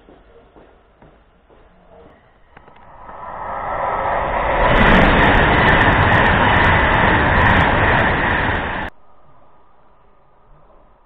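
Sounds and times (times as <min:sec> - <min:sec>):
footsteps on pavement: 0:00.0 - 0:02.1
faint low rumble: 0:01.9 - 0:11.0.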